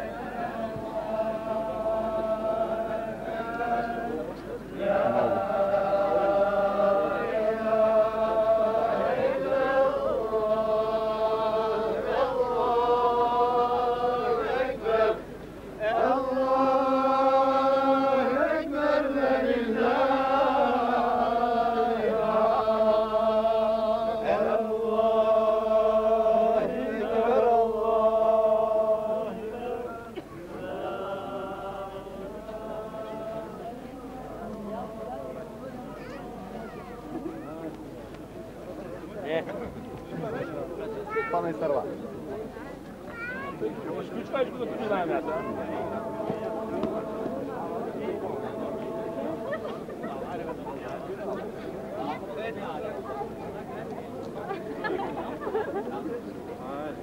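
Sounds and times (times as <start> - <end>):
men chanting in unison: 0.0 - 35.6, 44.1 - 50.8.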